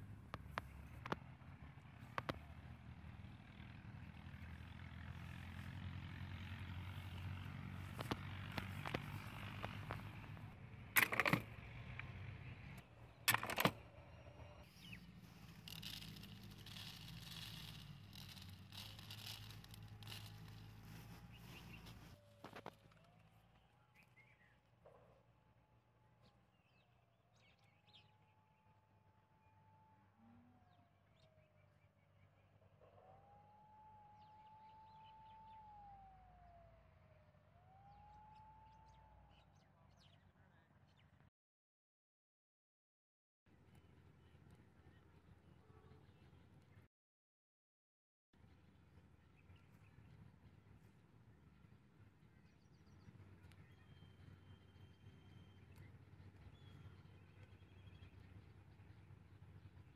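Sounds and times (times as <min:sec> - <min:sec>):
plastic trap rattling clicks: 0:11.0 - 0:11.5, 0:13.3 - 0:13.8, 0:15.4 - 0:20.6
distant wailing siren: 0:32.8 - 0:39.5.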